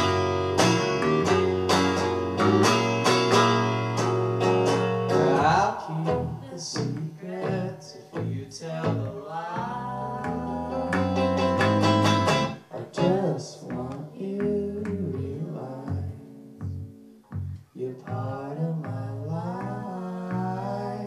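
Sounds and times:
electric guitar: 0.0s - 17.7s
electric bass: 0.0s - 21.0s
person singing long notes: 5.1s - 11.5s.

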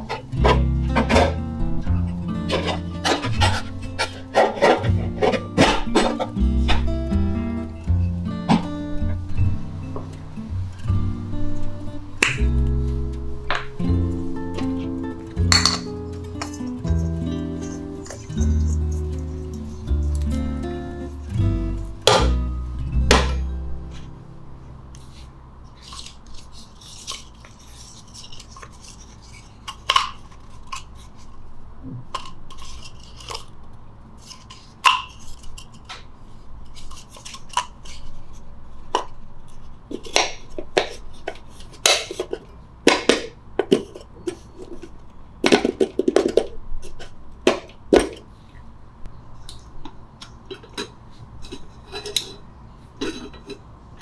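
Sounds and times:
metal cookware clinks and knocks: 15.4s - 19.1s.

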